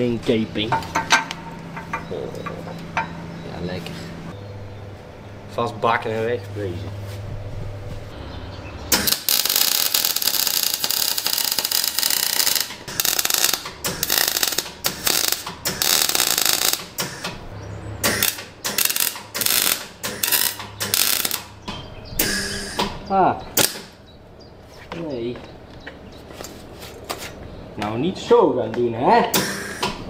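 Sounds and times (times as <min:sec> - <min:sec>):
electric welding: 0:08.9 - 0:17.3, 0:18.0 - 0:21.6.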